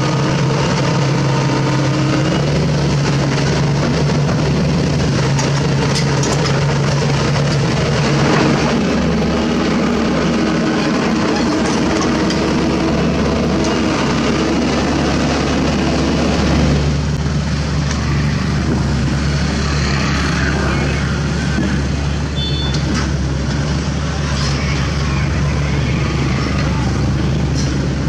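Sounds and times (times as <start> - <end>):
excavator diesel engine running: 0.0 - 28.0.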